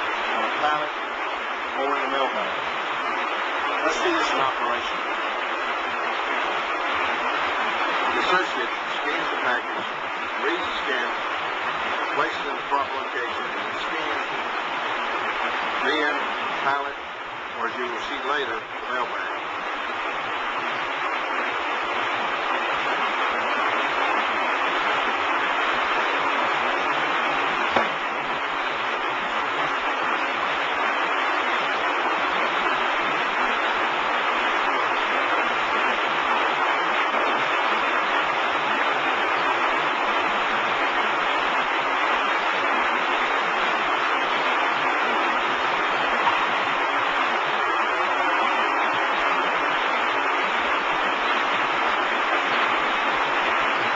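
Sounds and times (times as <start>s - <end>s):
conveyor rushing noise: 0.0s - 53.9s
brief knock: 27.7s - 28.0s.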